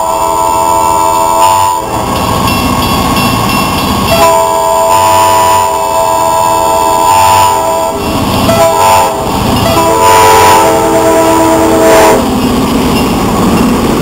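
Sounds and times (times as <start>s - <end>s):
locomotive air horn blasts: 0.0s - 2.0s, 4.1s - 12.3s
locomotive engine and wheels rumbling: 0.0s - 14.0s.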